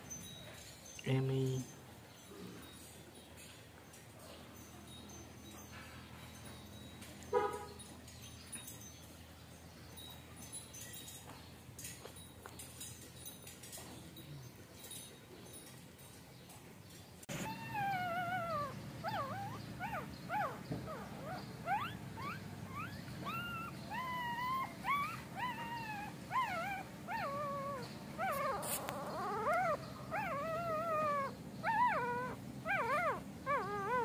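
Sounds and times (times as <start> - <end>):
puppies whimpering and crying: 17.2 - 34.0.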